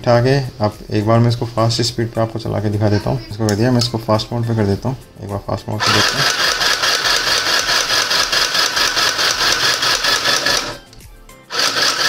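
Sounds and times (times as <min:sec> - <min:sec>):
sewing machine stitching: 0:05.8 - 0:10.9, 0:11.5 - 0:12.0.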